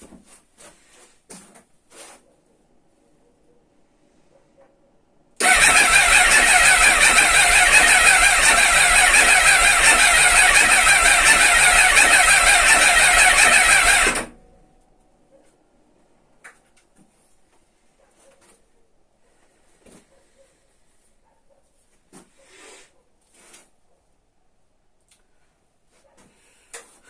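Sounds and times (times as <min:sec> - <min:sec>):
motorcycle engine running: 0:05.4 - 0:14.4.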